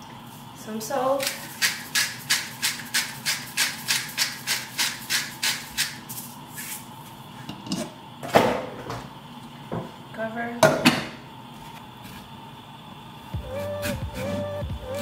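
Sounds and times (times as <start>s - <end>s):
hand spice grinder grinding: 1.2s - 6.3s.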